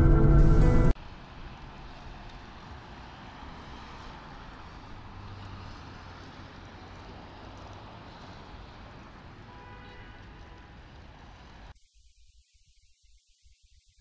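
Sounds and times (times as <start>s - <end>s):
low engine hum: 0.0s - 8.8s
faint traffic noise: 0.0s - 11.8s.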